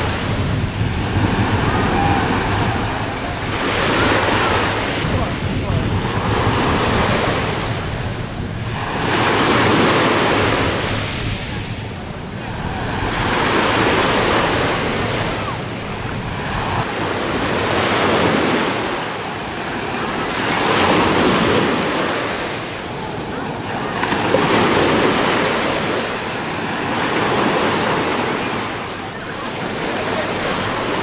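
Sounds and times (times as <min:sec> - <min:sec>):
waves breaking on sandy shore: 0:00.0 - 0:31.0.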